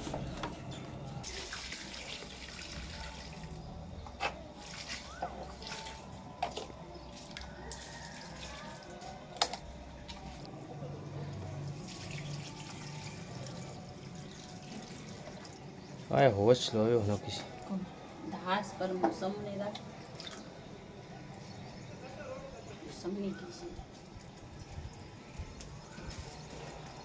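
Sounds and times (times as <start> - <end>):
water pouring onto soil: 1.2 - 3.6, 4.6 - 6.0, 11.7 - 15.6.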